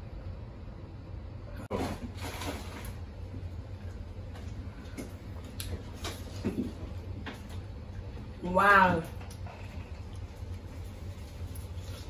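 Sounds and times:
people chewing with mouth smacks: 9.1 - 12.0.

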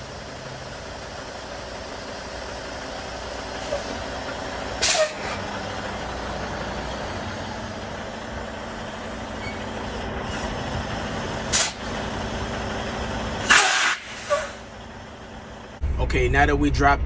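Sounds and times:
diesel truck engine running: 0.0 - 17.0
air brake hisses: 4.8 - 5.4, 11.5 - 11.9, 13.4 - 14.6.

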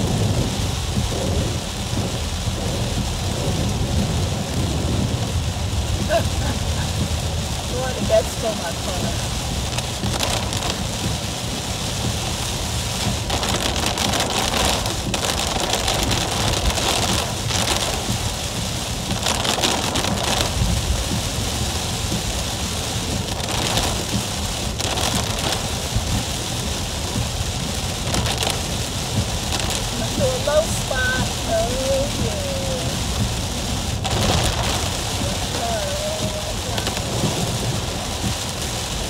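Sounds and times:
heavy rain on car roof: 0.0 - 39.0
low road rumble: 0.0 - 39.0.

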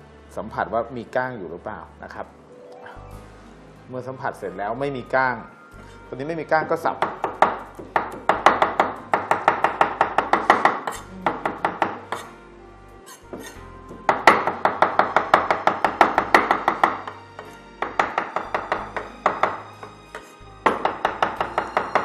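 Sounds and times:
knife chopping on wooden board: 6.9 - 12.4, 13.1 - 22.0.

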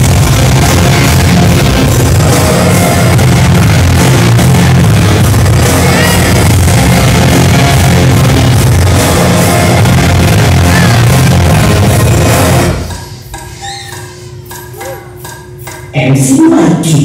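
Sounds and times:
loud dance music: 0.0 - 17.0.

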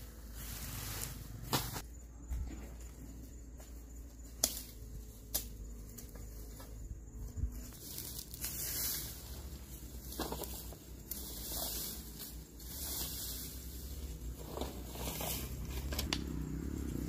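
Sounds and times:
straw rustling: 0.0 - 3.5, 4.1 - 17.0
hoe scraping dry grass: 0.0 - 4.4, 5.8 - 17.0.

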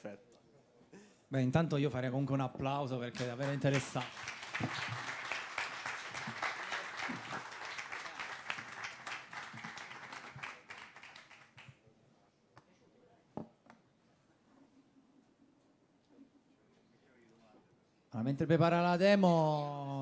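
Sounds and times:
audience applauding: 3.1 - 11.8.

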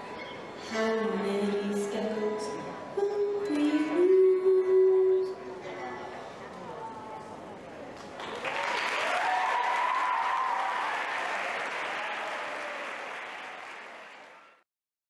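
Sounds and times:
audience applause: 8.0 - 14.6.

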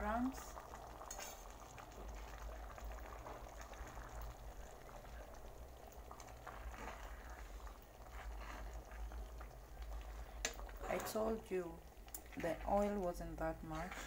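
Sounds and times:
stew bubbling with small pops: 0.0 - 14.0.

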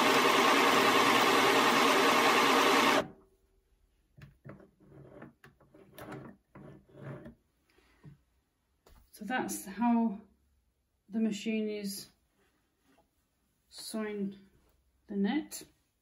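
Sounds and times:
electric sewing machine stitching: 0.0 - 3.1.

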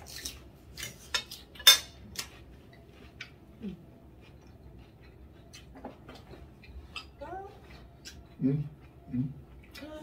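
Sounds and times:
cutlery clinking on plates: 0.8 - 2.0.

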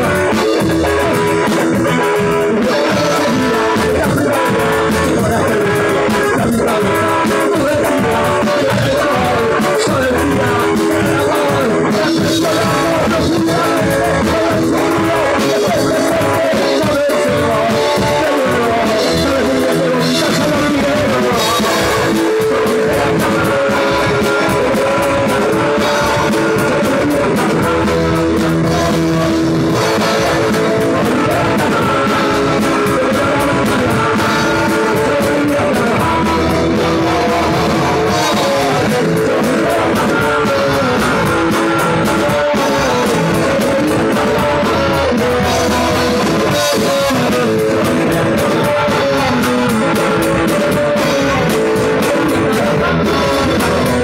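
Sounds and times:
drums: 0.0 - 54.0
electric guitars: 0.0 - 54.0
person singing into a microphone: 0.0 - 54.0.

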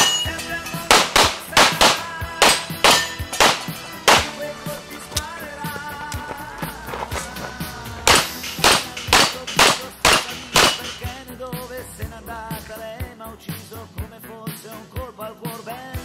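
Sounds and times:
bullets hitting steel plates: 0.0 - 5.3, 8.0 - 11.2
background music: 0.0 - 16.0
pistol shots: 0.9 - 4.8, 8.1 - 11.0.

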